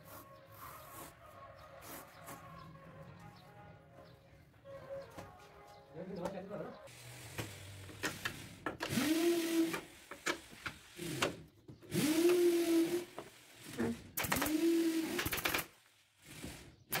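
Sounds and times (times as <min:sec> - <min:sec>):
small motor whining: 0:06.9 - 0:17.0.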